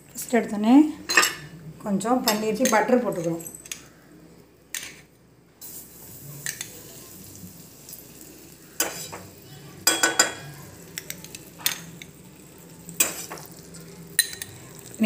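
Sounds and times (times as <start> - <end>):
butter sizzling in pan: 5.6 - 15.0
spoon clinking on bowl and pan: 9.8 - 12.1, 13.0 - 13.5, 14.1 - 14.7.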